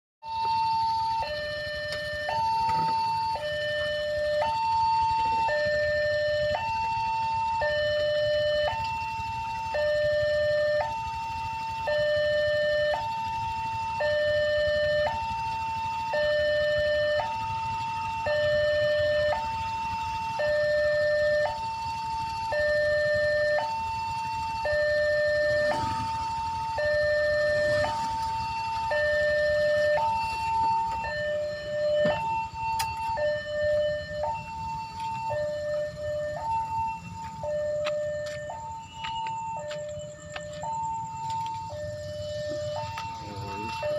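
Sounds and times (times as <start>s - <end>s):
two-tone level crossing alarm: 0.2s - 43.9s.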